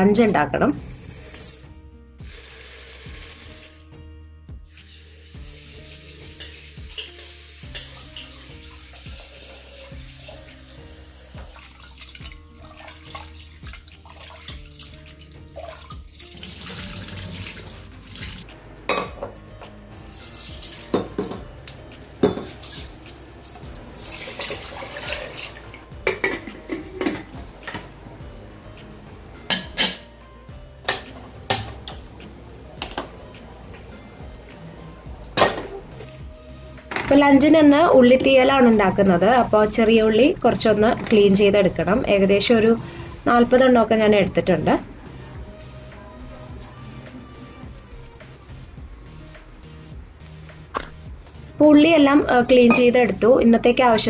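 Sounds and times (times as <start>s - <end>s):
water sloshing and splashing: 11.3s - 18.4s, 22.4s - 27.3s.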